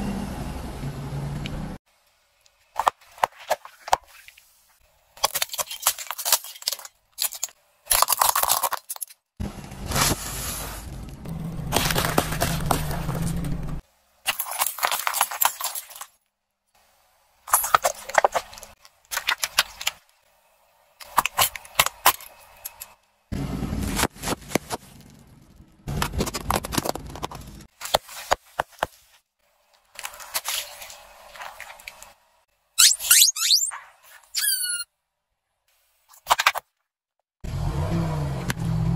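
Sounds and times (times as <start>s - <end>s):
tyre crushing objects: 11.6s - 13.8s.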